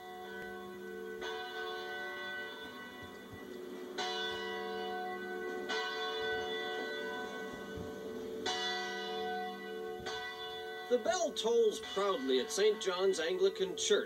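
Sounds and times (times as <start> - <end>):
church bell tolling: 0.0 - 14.0.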